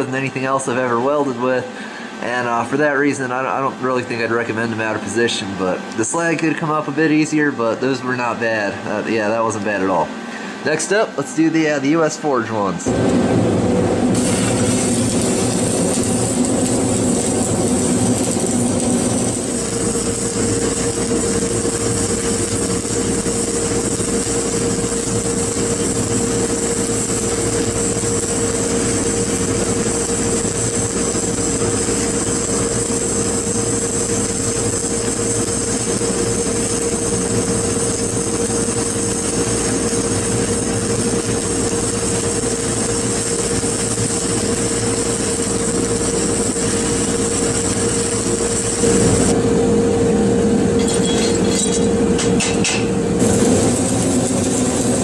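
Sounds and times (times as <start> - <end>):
constant hum: 0.0 - 55.0
welding arc crackling hiss: 12.9 - 49.4, 53.1 - 55.0.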